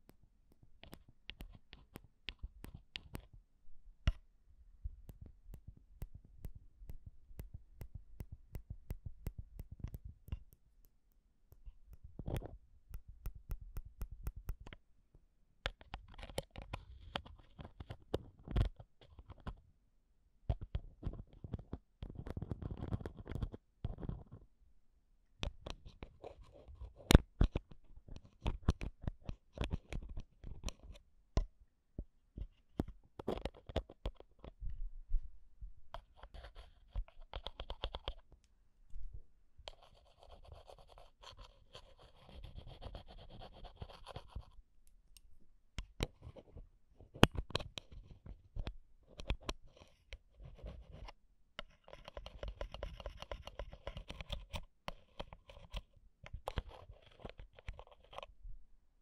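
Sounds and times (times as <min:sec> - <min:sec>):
scraping on microphone: 0:49.2 - 0:51.2.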